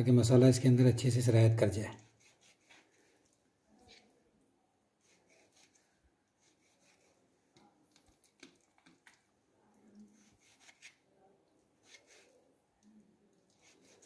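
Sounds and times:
knife scraping raw chicken: 1.9s - 4.2s, 4.9s - 9.2s, 9.8s - 14.0s.

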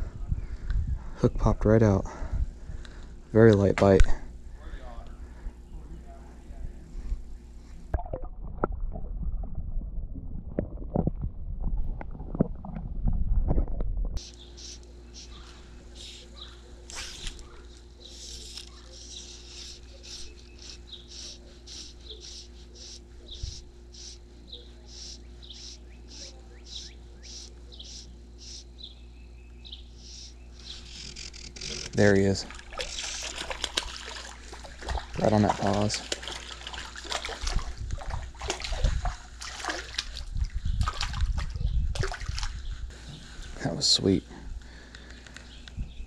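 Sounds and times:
faint steady hum: 0.0s - 46.0s
underwater rumble: 6.8s - 14.2s
underwater knocks and clicks: 10.3s - 14.2s.

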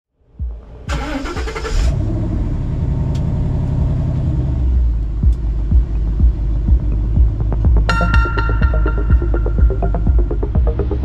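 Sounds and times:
short low thumps: 0.3s - 0.9s, 5.1s - 11.0s
car engine idling: 0.4s - 11.0s.

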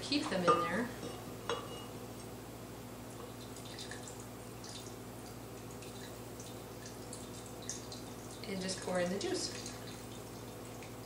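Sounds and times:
juice dripping and trickling: 3.0s - 11.0s.

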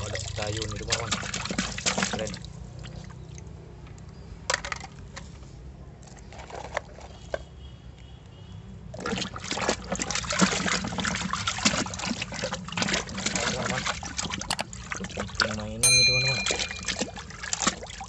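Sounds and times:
scrubbing toy in splashing water: 0.0s - 3.6s, 8.9s - 18.0s.

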